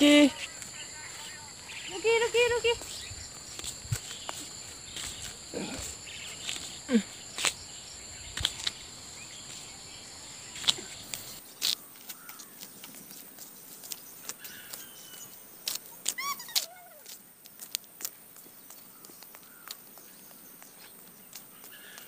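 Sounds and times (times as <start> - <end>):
bird chirps: 0.0 - 5.3, 13.9 - 16.6
high-pitched insect chorus: 0.0 - 22.0.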